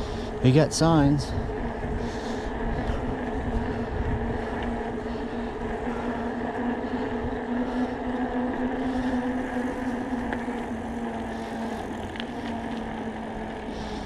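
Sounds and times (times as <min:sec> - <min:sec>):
electric bike motor whining: 0:00.0 - 0:14.0
wind on microphone: 0:01.1 - 0:05.1.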